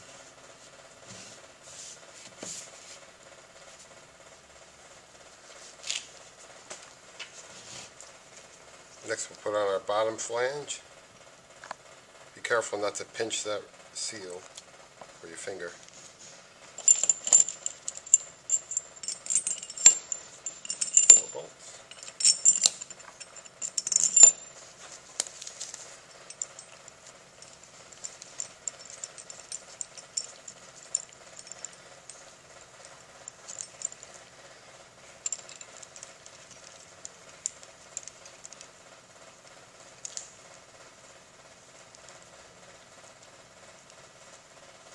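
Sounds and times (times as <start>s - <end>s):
metal parts clinking: 16.8s - 25.4s, 26.2s - 32.3s, 33.0s - 34.2s, 35.2s - 38.7s.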